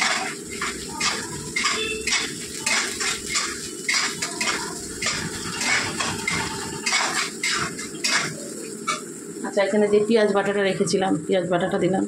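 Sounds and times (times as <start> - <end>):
spatula scraping a wok: 0.0 - 9.1.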